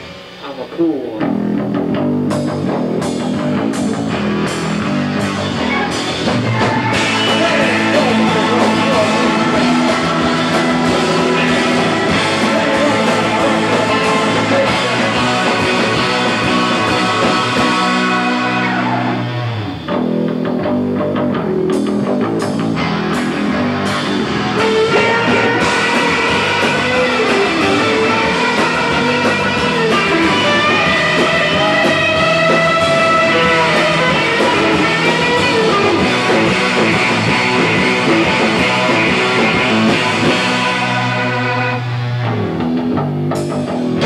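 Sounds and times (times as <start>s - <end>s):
instrumental surf rock band: 0.0s - 44.0s
sliding lead guitar line: 0.0s - 44.0s.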